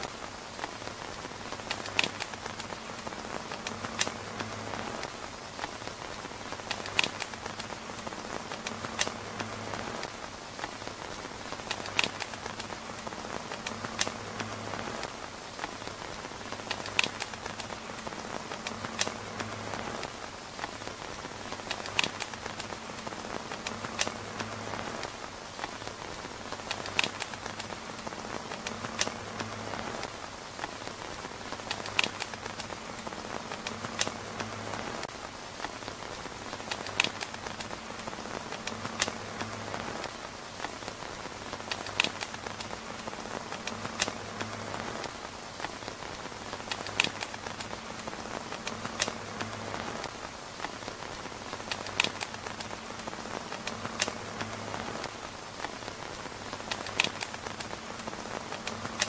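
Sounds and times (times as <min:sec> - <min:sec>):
rain pattering on tent roof: 0:00.0 - 0:59.0.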